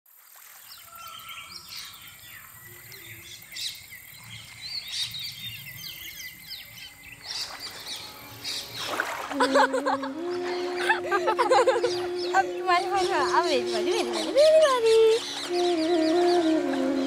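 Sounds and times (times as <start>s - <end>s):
small birds chirping: 0.6s - 9.1s
low steady hum: 8.2s - 17.0s.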